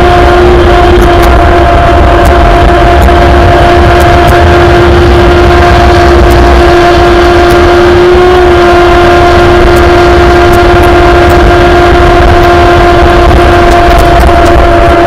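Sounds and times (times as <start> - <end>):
model boat motor whine: 0.0 - 15.0
wind rumble on microphone: 0.0 - 15.0.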